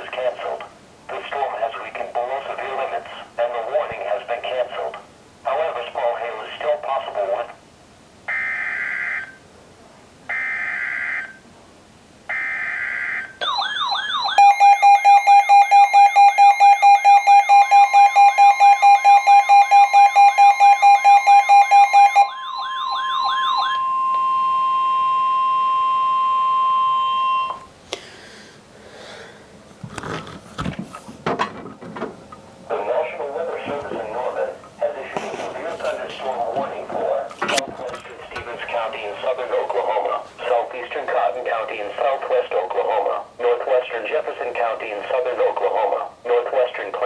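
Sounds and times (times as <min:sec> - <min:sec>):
steady warning alarm tone: 0:08.3 - 0:09.4, 0:10.3 - 0:11.4, 0:12.3 - 0:27.7
warbling siren alarm: 0:08.3 - 0:09.4, 0:10.3 - 0:11.4, 0:12.3 - 0:27.7
rapid pulsing beep: 0:13.4 - 0:27.7.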